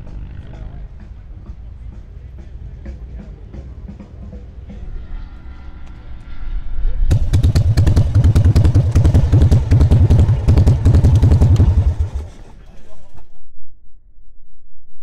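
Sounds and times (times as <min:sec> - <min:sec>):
motorcycle engine running: 0:07.1 - 0:12.6.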